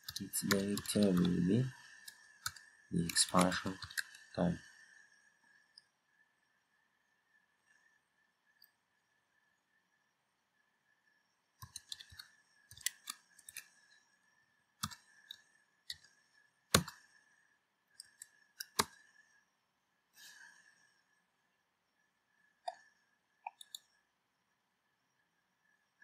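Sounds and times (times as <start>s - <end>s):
computer keyboard typing: 0.0s - 4.4s, 11.6s - 13.8s, 14.8s - 16.1s, 16.7s - 17.0s, 18.0s - 19.0s, 23.4s - 23.8s.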